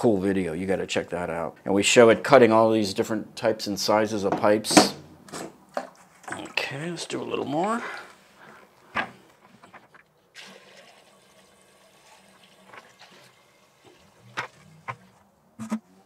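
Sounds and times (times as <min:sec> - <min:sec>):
water pouring into a funnel: 0:10.4 - 0:14.4
water running down a pipe: 0:10.4 - 0:14.6.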